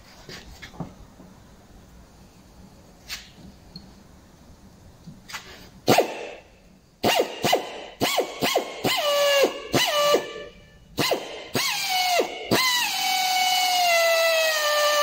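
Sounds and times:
air drill whining: 0:07.0 - 0:15.0.

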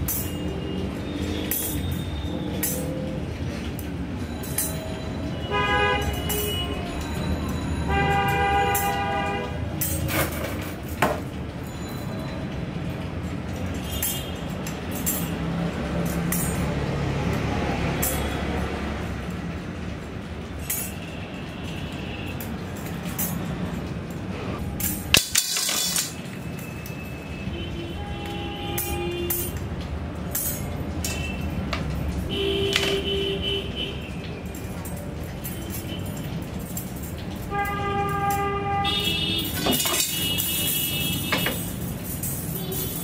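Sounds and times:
spokes clinking: 0:00.0 - 0:12.3, 0:24.6 - 0:27.5, 0:34.1 - 0:43.0.

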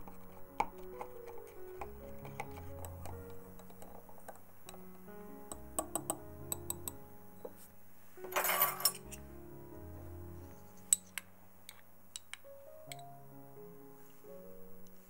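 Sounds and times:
soft background music: 0:00.0 - 0:15.0
utensils clinking on glass bowls: 0:08.3 - 0:09.2.

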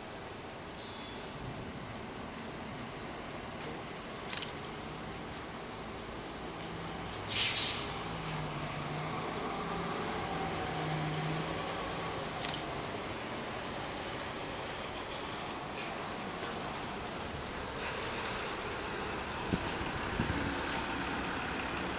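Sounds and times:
bus engine driving past: 0:00.1 - 0:21.9
air brake hiss: 0:07.3 - 0:08.5.

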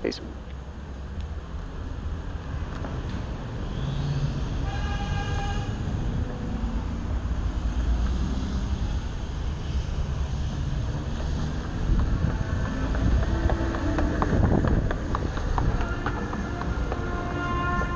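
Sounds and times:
street noise rumble: 0:00.0 - 0:17.9
vehicle horn: 0:04.6 - 0:06.0, 0:15.6 - 0:17.9.

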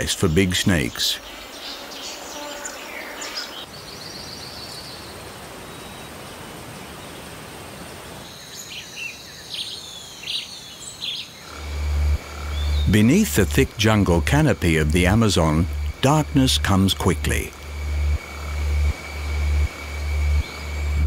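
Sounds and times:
steady background hiss: 0:00.0 - 0:21.0
bird chirps and trills: 0:08.3 - 0:14.4
low hum: 0:11.5 - 0:21.0.

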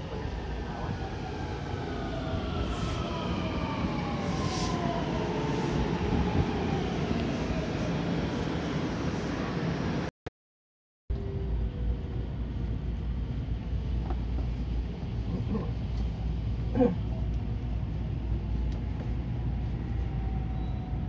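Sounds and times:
wheels rumbling on rail: 0:11.2 - 0:21.0.

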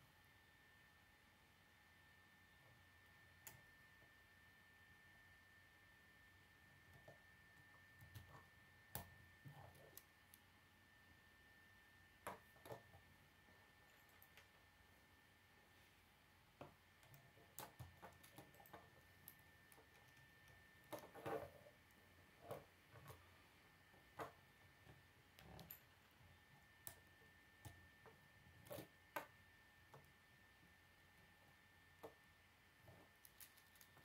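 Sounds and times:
plastic pieces clicking together: 0:33.2 - 0:34.0.

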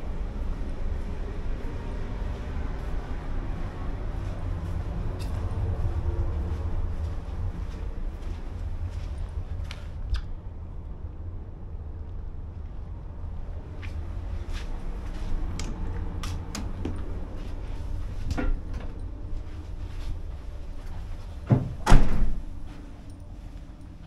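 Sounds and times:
low rumble: 0:00.0 - 0:24.0
heavy door thudding shut: 0:21.5 - 0:22.6.

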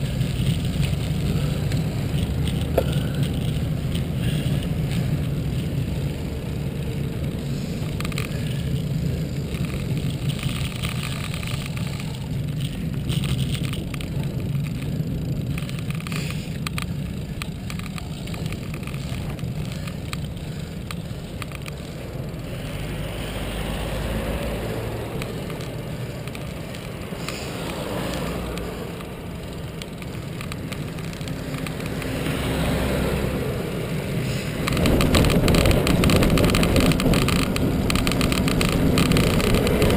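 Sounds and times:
bicycle rattling over bumps: 0:00.0 - 0:39.9
bicycle tyres on tarmac: 0:00.0 - 0:39.9
van passing: 0:00.0 - 0:39.9
wind noise on microphone: 0:32.8 - 0:39.9.

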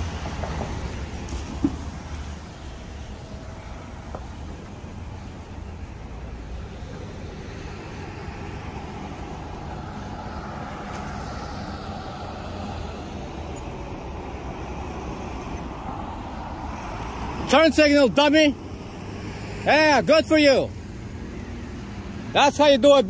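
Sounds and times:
vehicle passing: 0:00.0 - 0:23.0.

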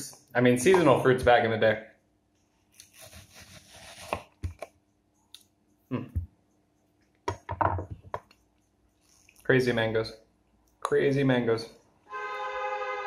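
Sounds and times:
knife slicing mango: 0:02.8 - 0:04.4.

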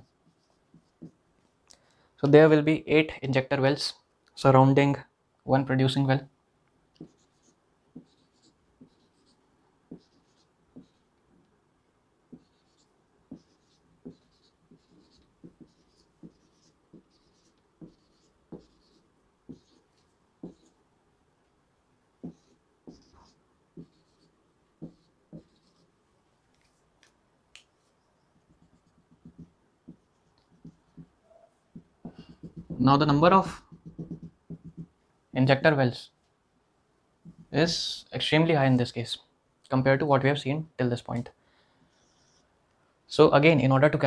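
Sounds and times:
marker squeaking on whiteboard: 0:00.0 - 0:01.2, 0:07.0 - 0:11.1, 0:12.3 - 0:20.8, 0:22.2 - 0:25.9, 0:27.8 - 0:34.9, 0:41.9 - 0:42.5
marker ticking on whiteboard: 0:12.3 - 0:19.8, 0:20.4 - 0:20.7, 0:23.8 - 0:24.2, 0:24.8 - 0:25.8, 0:28.4 - 0:31.1, 0:31.8 - 0:32.9, 0:33.6 - 0:34.9.

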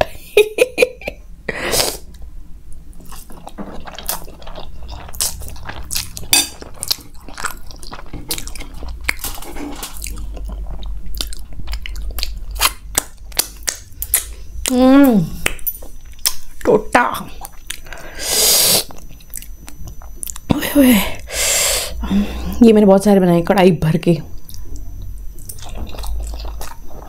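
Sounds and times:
chewing with wet smacks: 0:03.0 - 0:14.8, 0:18.9 - 0:20.5, 0:24.4 - 0:27.0.

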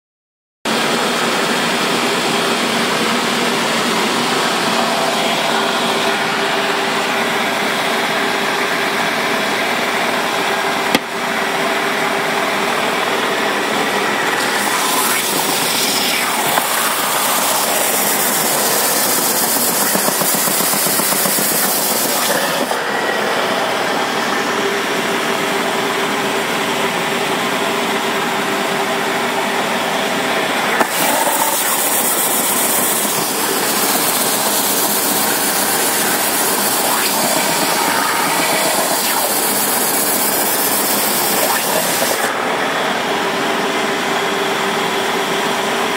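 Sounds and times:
belt sander motor hum: 0:13.0 - 0:24.4, 0:30.5 - 0:42.9.

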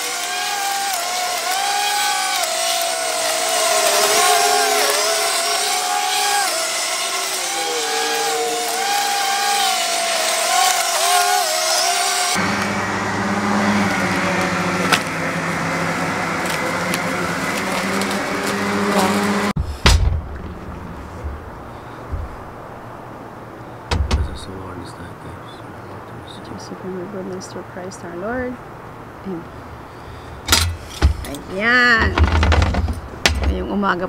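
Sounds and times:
electric lawn mower running: 0:00.0 - 0:19.6.

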